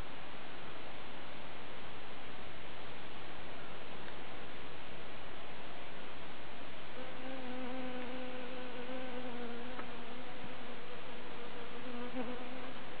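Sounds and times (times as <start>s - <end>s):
background hiss: 0.0s - 13.0s
honeybee buzzing: 7.0s - 13.0s.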